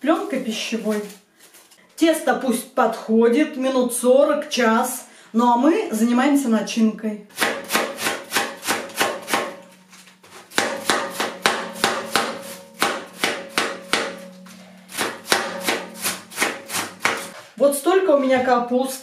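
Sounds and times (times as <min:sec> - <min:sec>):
knife slicing cabbage: 0:07.4 - 0:14.2, 0:14.9 - 0:17.5.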